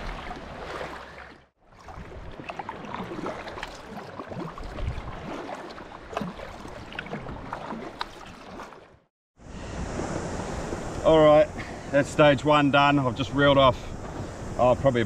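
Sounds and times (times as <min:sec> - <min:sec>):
small splashes and trickles: 0:00.0 - 0:09.1
water lapping against kayak hull: 0:00.0 - 0:09.1.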